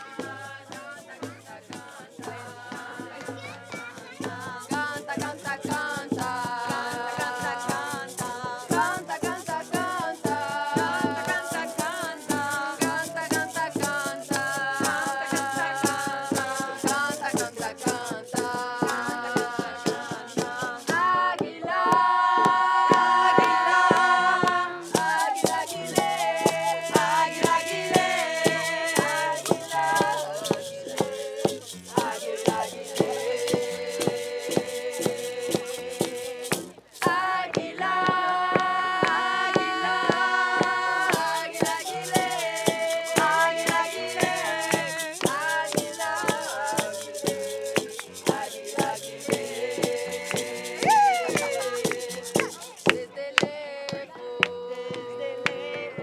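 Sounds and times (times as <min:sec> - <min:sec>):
acoustic guitar: 0:00.0 - 0:56.0
group singing: 0:00.0 - 0:56.0
frame drums struck with beaters: 0:00.1 - 0:54.0
wooden flute: 0:08.4 - 0:20.3, 0:22.0 - 0:37.4, 0:38.0 - 0:56.0
rattles shaking: 0:24.8 - 0:37.1, 0:41.1 - 0:53.0.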